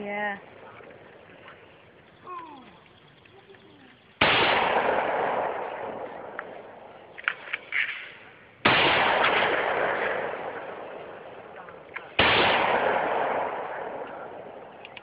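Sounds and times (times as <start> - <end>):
rifle shots: 4.2 - 15.0
faint clicks: 14.8 - 15.0.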